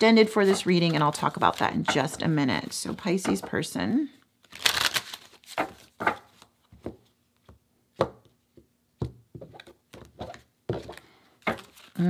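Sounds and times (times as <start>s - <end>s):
cards being shuffled: 4.4s - 7.5s, 9.6s - 12.0s.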